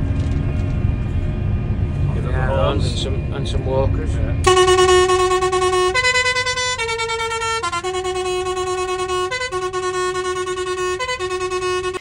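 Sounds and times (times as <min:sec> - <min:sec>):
musical vehicle horn: 0:04.4 - 0:12.0.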